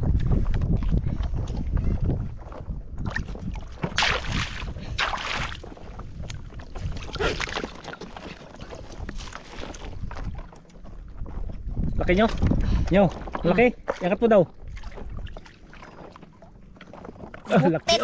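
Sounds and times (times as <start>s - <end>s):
wind rumbling on microphone: 0.0s - 17.5s
water splashing around boat: 2.4s - 18.0s.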